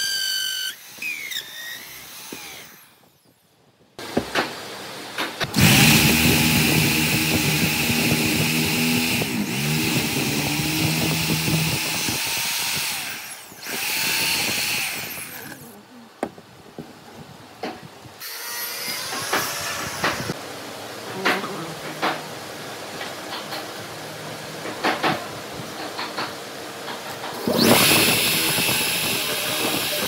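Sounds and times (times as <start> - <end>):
power tool motor whine: 0.0 - 3.3, 5.5 - 15.7, 27.3 - 30.0.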